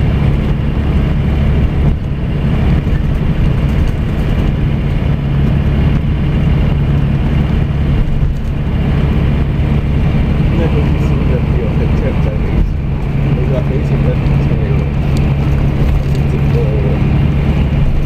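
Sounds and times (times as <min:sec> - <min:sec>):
coach engine drone: 0:00.0 - 0:18.0
road noise: 0:00.0 - 0:18.0.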